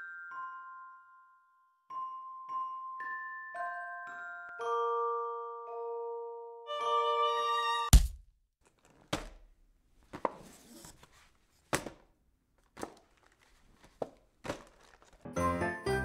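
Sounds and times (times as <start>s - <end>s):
knocks in cardboard box: 11.7s - 12.1s
paper rustle: 12.6s - 15.3s.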